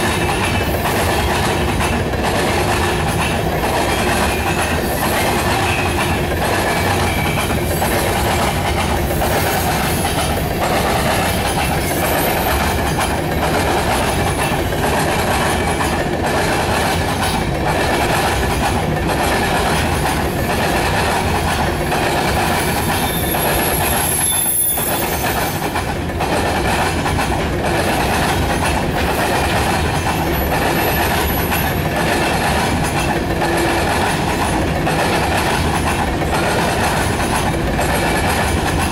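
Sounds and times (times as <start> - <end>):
train wheels clattering over rails: 0.0 - 38.9
high-pitched wheel squeal: 22.8 - 25.6.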